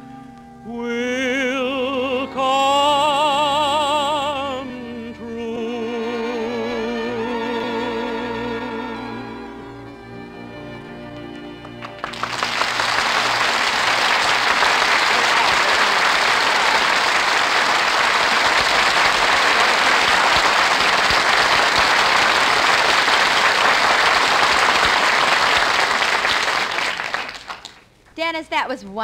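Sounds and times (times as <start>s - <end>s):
orchestral song: 0.0s - 26.1s
audience applauding: 11.2s - 27.9s.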